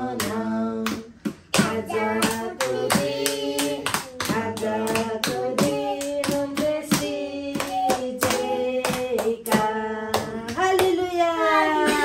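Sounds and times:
people singing together: 0.0s - 12.0s
hands clapping in a steady beat: 0.1s - 11.0s.

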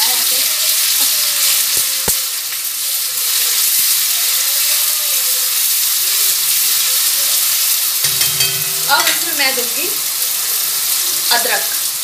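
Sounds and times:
garlic sizzling in hot oil: 0.0s - 7.3s
metal spoon tapping pan: 8.1s - 9.9s.

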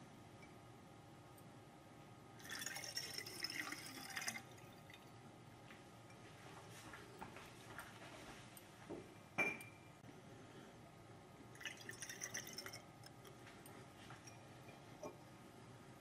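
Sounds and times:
water pouring into glass: 2.4s - 5.1s, 11.5s - 13.2s
glass clink: 9.4s - 9.9s, 14.2s - 15.2s.

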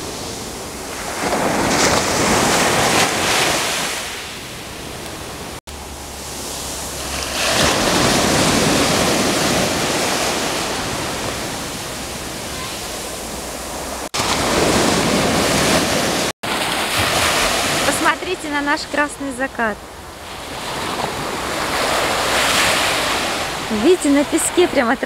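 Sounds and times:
surf breaking on beach: 0.0s - 19.5s, 20.2s - 25.0s.

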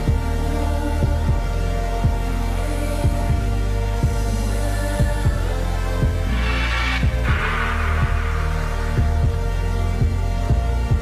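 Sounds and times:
heartbeat-like pulsing beat: 5.0s - 11.0s
sustained low tones: 6.0s - 10.3s.

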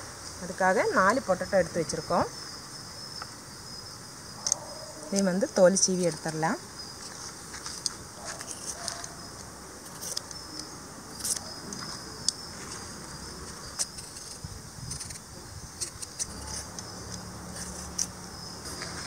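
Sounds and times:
crickets chirping: 0.0s - 19.0s
peeler scraping potato skin: 13.7s - 16.8s, 17.5s - 18.2s.

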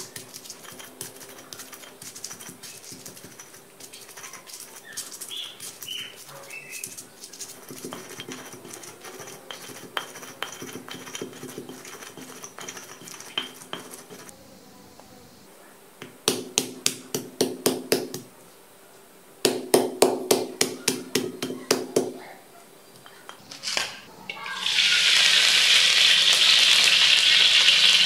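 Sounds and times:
stone pestle grinding in mortar: 0.0s - 14.3s
stone knocking on stone: 6.8s - 14.3s.

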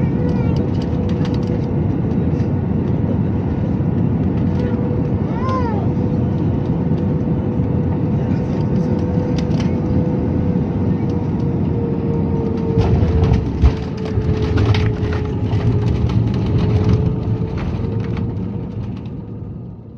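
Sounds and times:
jet engine and airflow noise: 0.0s - 19.9s
steady whine: 0.0s - 19.9s
rushing of plane rolling out: 12.3s - 19.3s.

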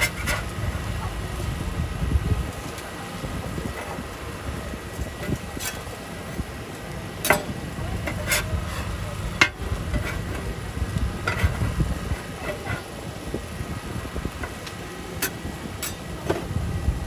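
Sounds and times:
metal spatulas clacking and scraping: 7.2s - 10.4s, 11.2s - 11.6s, 15.2s - 16.1s.

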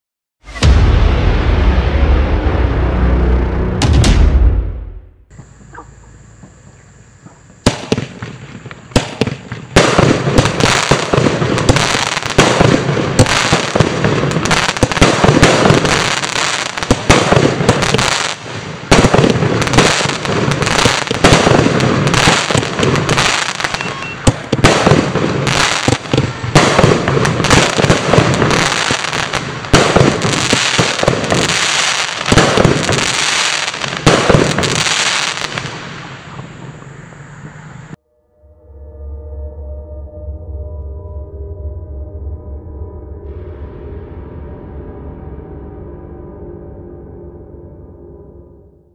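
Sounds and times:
fireworks launches and bursts: 7.6s - 37.0s.

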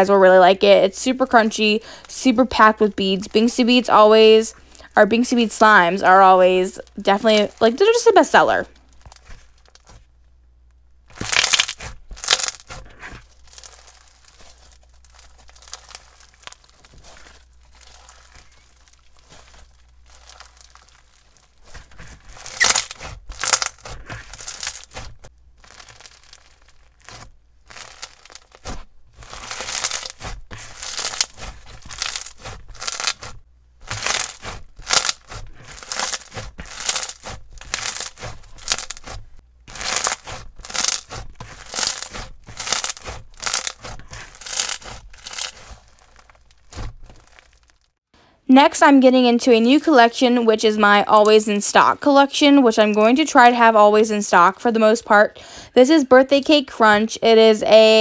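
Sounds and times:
bead slime crunching and crackling: 6.7s - 10.2s, 11.0s - 48.1s.

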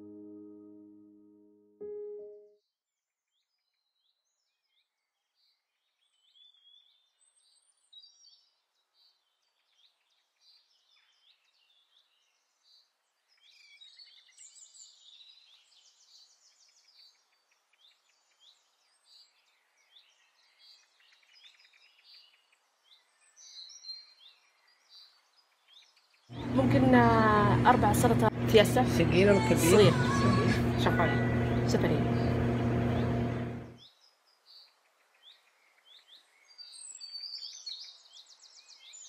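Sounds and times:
birds chirping and trilling: 3.3s - 39.0s.

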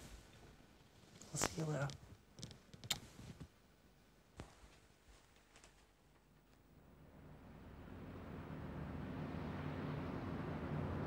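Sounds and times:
boat diesel engine hum: 6.8s - 11.0s.

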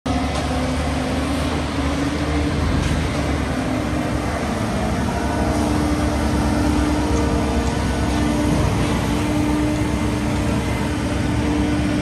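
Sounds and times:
diesel truck engine running: 0.1s - 12.0s.

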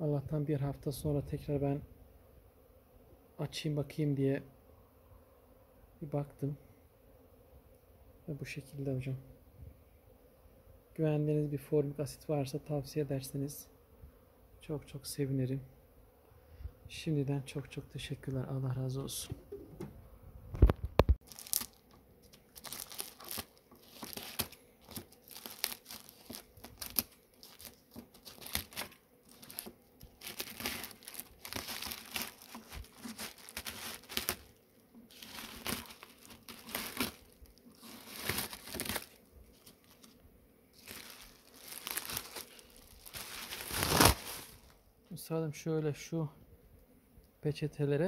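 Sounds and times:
plastic bags crinkling: 21.2s - 40.2s, 40.8s - 44.8s.

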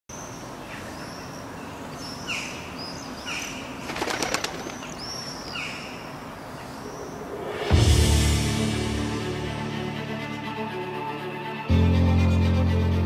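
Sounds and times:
steady background noise: 0.1s - 7.9s
gulls calling: 0.3s - 7.6s
quick series of clicks: 3.8s - 5.2s.

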